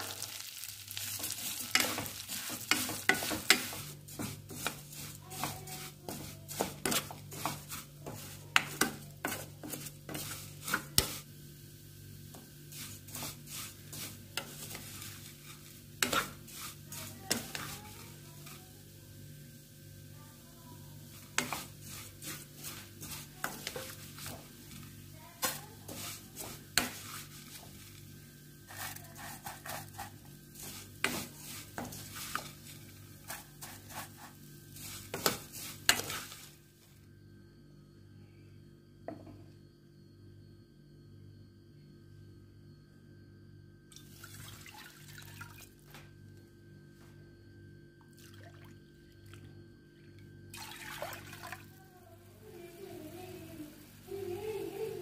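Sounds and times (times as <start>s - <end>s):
spatula clicking and scraping pan: 0.0s - 11.2s, 12.4s - 18.6s, 21.0s - 27.8s, 28.7s - 36.5s
faint sizzle: 0.0s - 55.0s.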